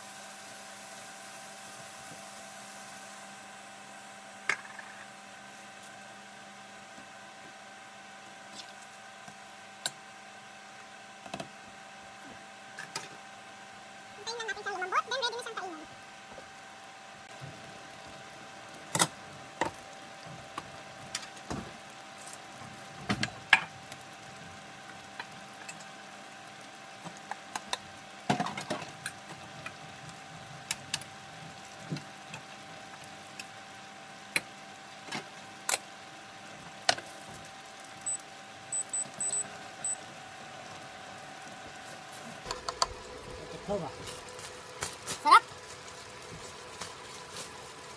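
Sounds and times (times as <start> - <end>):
steady electrical hum: 0.0 - 47.9.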